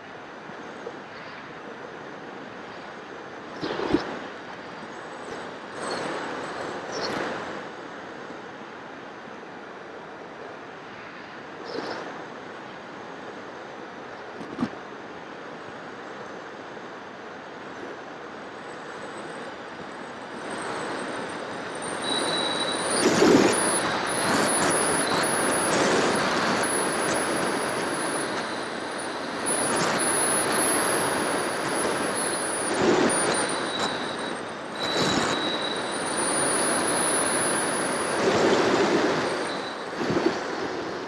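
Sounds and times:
wind buffeting microphone: 0:19.7 - 0:41.0.

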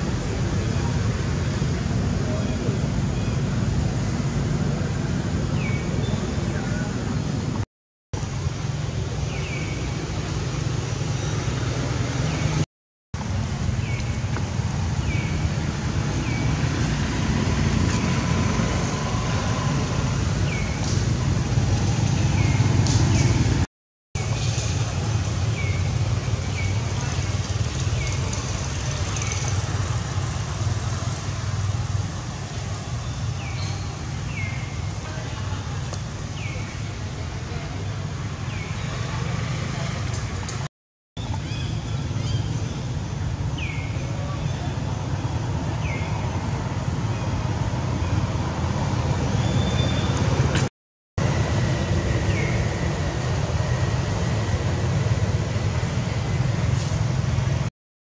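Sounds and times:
road traffic rumble: 0:00.0 - 0:57.7
low outdoor rumble: 0:34.8 - 0:57.7.

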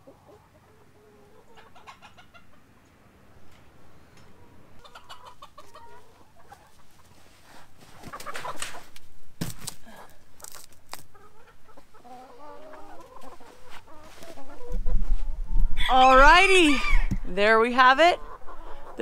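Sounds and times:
chickens clucking: 0:00.0 - 0:09.1, 0:10.1 - 0:19.0
rustles: 0:02.8 - 0:15.7.

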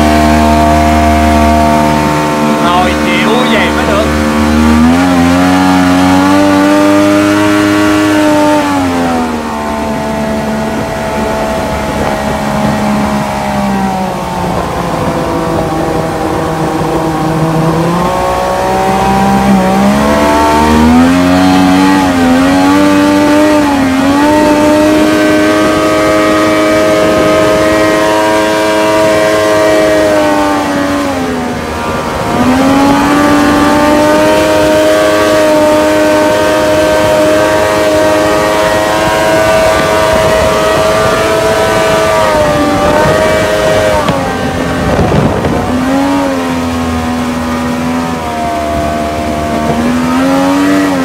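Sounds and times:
jet boat engine running hard: 0:00.0 - 0:51.0.

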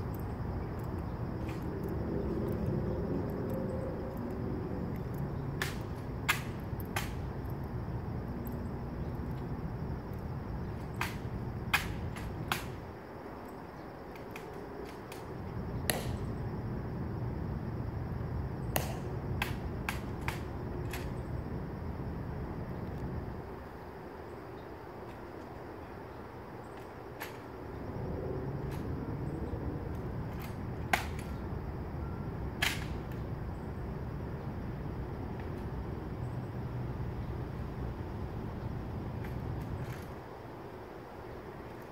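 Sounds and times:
steady low rumble: 0:00.0 - 0:13.3.

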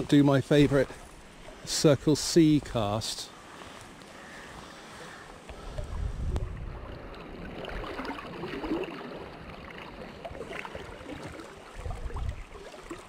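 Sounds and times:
river current flowing and lapping: 0:00.0 - 0:13.0
wind rumble on microphone: 0:05.6 - 0:08.8, 0:10.3 - 0:12.6.

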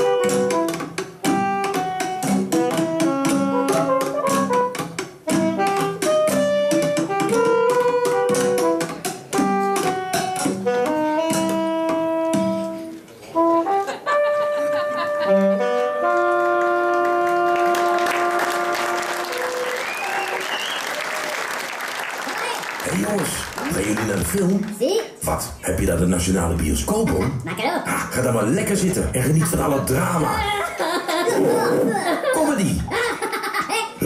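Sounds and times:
live band with saxophone and trumpet: 0:00.0 - 0:21.5
audience applause: 0:16.1 - 0:24.8.

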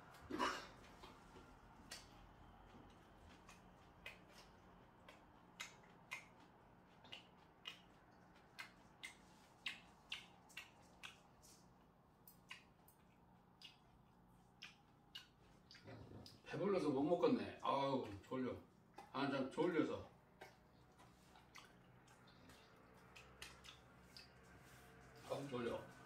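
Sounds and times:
faint room hum: 0:00.0 - 0:26.0
person chewing: 0:00.1 - 0:16.5, 0:20.0 - 0:25.3
mouth clicks and smacks: 0:03.3 - 0:16.5, 0:20.2 - 0:25.1.

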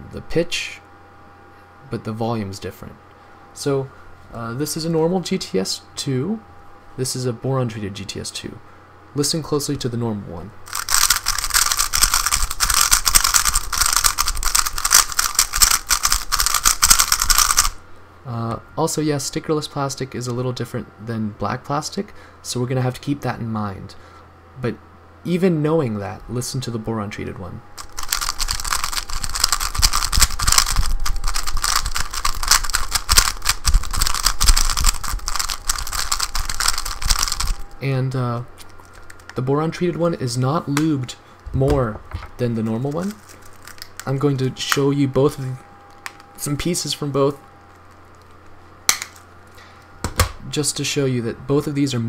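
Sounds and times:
puzzle cube plastic clicks: 0:10.7 - 0:17.8, 0:27.8 - 0:37.6.

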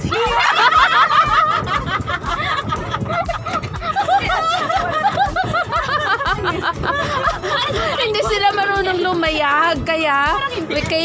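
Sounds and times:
woman laughing ha-ha: 0:00.0 - 0:08.3
woman giggling: 0:00.3 - 0:08.2.

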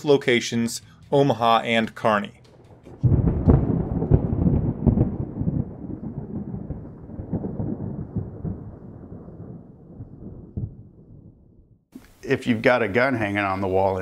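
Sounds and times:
rolling thunder: 0:02.2 - 0:11.8.

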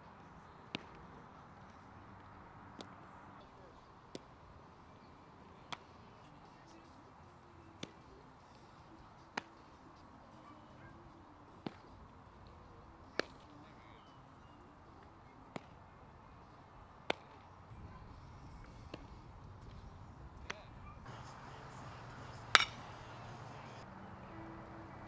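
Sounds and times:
baseballs smacking into gloves: 0:00.7 - 0:01.2, 0:02.2 - 0:03.0, 0:07.8 - 0:08.1, 0:11.6 - 0:12.0, 0:13.1 - 0:13.5, 0:15.0 - 0:15.8, 0:17.0 - 0:17.5, 0:22.4 - 0:23.0.

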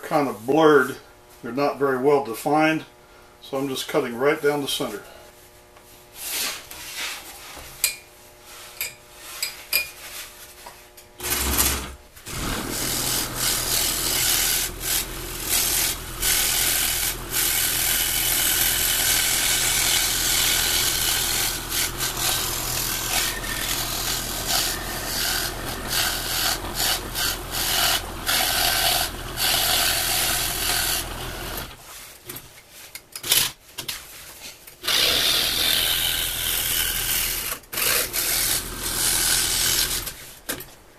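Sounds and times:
saw motor hum: 0:11.1 - 0:31.8, 0:34.8 - 0:40.2
scroll saw rasping through wood: 0:11.2 - 0:31.9, 0:34.8 - 0:40.2.

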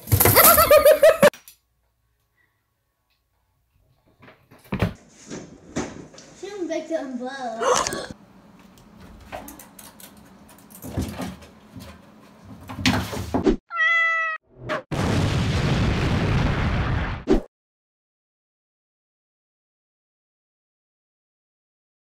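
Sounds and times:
cat meow: 0:13.7 - 0:14.4.

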